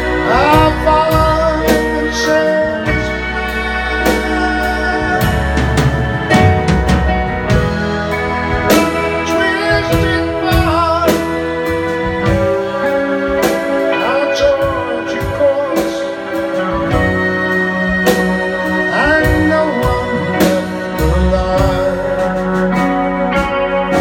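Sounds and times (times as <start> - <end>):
drums: 0.0 - 24.0
electric guitar: 0.0 - 24.0
electric keyboard: 0.0 - 24.0
soprano saxophone: 7.1 - 24.0.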